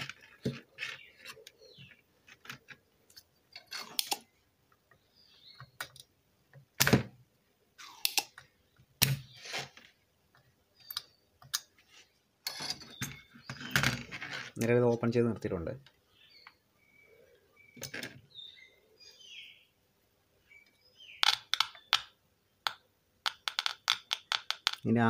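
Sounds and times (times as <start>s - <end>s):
hand tools clicking and knocking: 22.7s - 24.9s.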